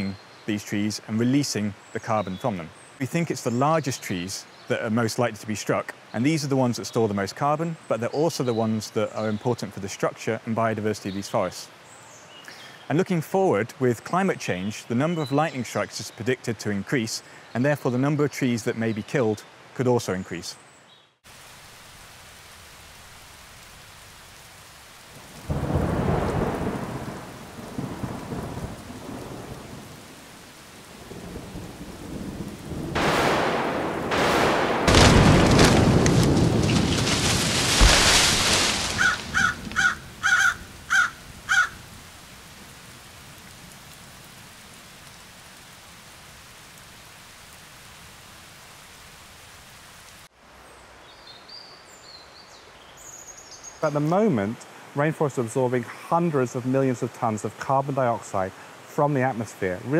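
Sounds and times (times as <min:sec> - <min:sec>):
rain hissing: 0:00.0 - 0:20.6, 0:21.2 - 0:51.1, 0:51.9 - 0:59.9
thunder rumbling: 0:25.2 - 0:42.7
loud crash of thunder: 0:31.2 - 0:39.5.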